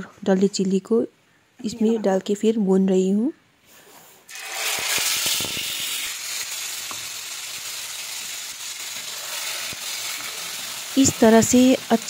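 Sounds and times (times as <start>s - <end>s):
hot oil sizzling in a frying pan: 4.3s - 12.0s.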